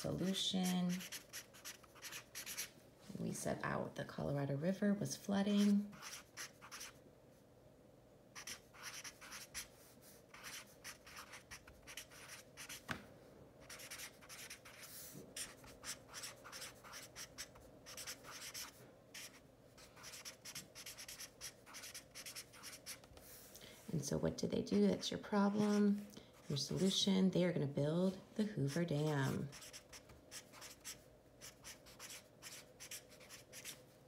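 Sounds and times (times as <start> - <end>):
marker writing on paper: 0.9 - 2.7, 5.6 - 7.0, 8.4 - 9.7, 10.3 - 12.8, 13.6 - 23.0, 25.5 - 25.8, 28.7 - 33.8.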